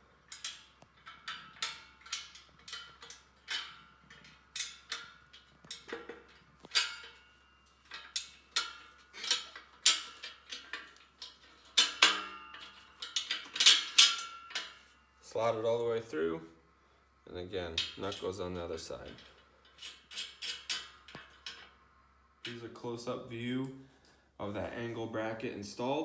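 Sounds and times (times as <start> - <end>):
metal bolt clinking and rattling: 0.0 - 15.1, 17.7 - 21.8.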